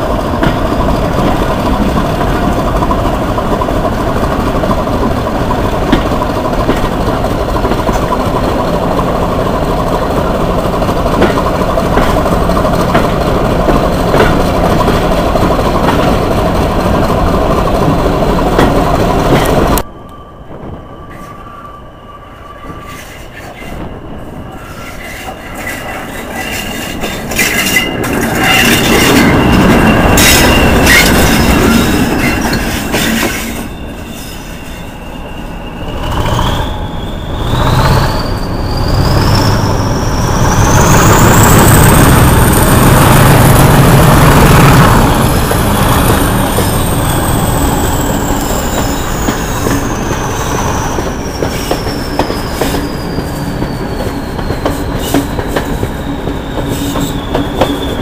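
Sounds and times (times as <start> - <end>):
locomotive engine rumble: 22.7 - 58.0.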